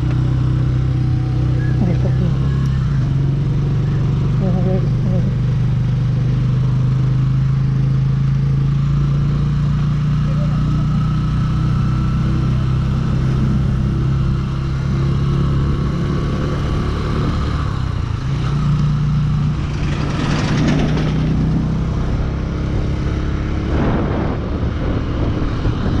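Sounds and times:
motorcycle engine running: 0.0s - 26.0s
rushes of noise: 19.3s - 26.0s.

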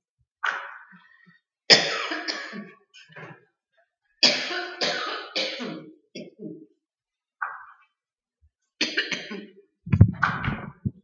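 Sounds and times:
person coughing: 1.7s - 2.7s.

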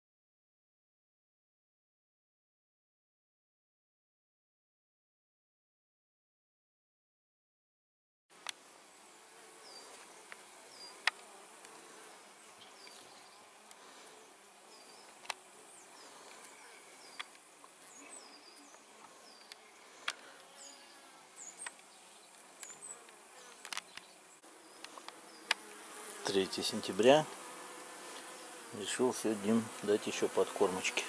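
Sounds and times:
bees buzzing: 8.4s - 31.0s.

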